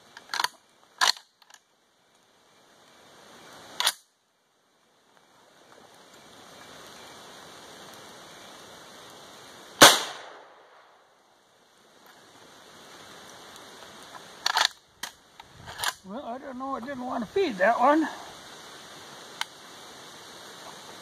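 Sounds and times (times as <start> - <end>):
rifle shot with echo: 9.8 - 10.8
metallic rifle action clicks: 14.4 - 16.0.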